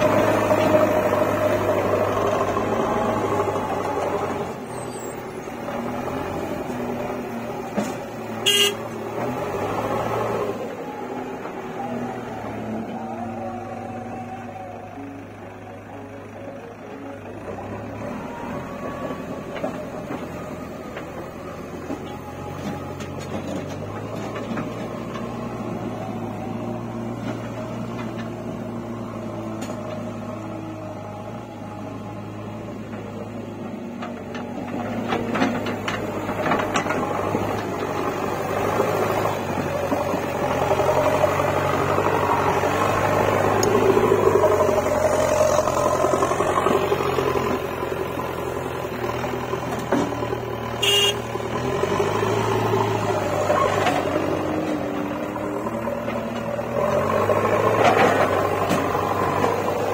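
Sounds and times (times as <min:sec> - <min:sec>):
backhoe diesel engine running: 0:00.0 - 0:59.9
high squeal: 0:04.6 - 0:05.4.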